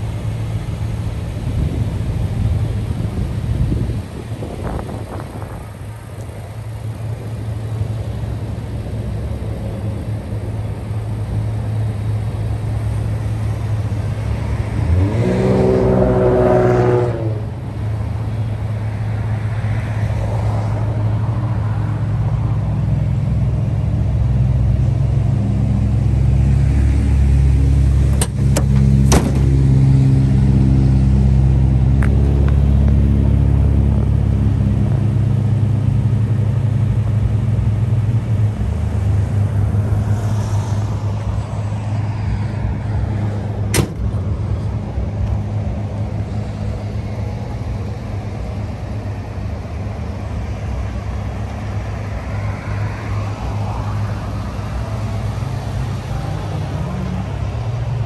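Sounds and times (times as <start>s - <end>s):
engine revving: 13.8s - 17.8s.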